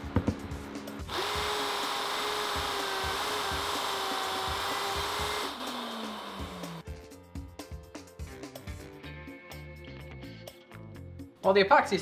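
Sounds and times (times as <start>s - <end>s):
router bit cutting plywood: 1.1s - 6.8s
router motor whining: 1.1s - 6.8s.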